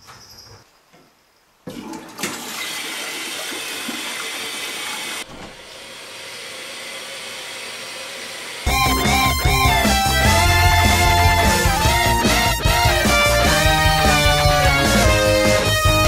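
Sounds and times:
toilet flushing: 0:01.7 - 0:08.7
music: 0:08.7 - 0:16.0.

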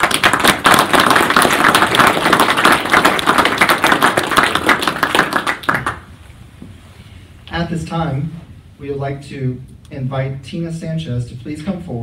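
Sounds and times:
audience applauding: 0:00.0 - 0:06.1.

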